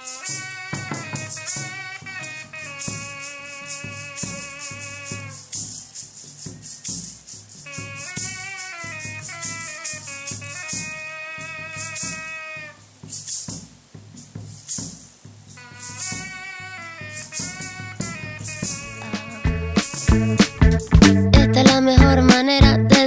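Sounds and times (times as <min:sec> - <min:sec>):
flute melody: 0:00.0 - 0:05.5, 0:07.7 - 0:12.5, 0:15.7 - 0:21.7
seed-pod rattles shaken: 0:00.0 - 0:21.0.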